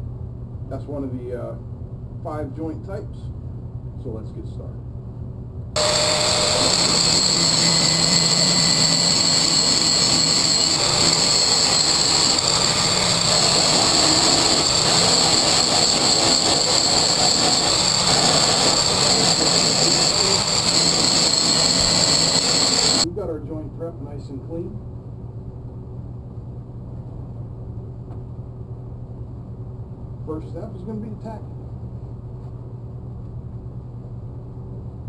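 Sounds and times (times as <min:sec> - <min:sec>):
angle grinder grinding steel: 0:05.8 - 0:23.0.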